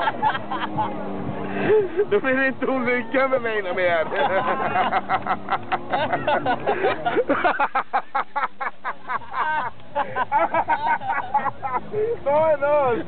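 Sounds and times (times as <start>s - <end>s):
man laughing hard: 4.0s - 12.2s.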